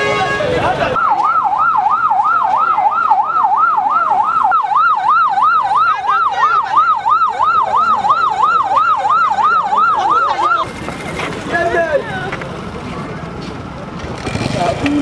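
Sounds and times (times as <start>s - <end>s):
electronic siren yelping: 1.0s - 10.7s.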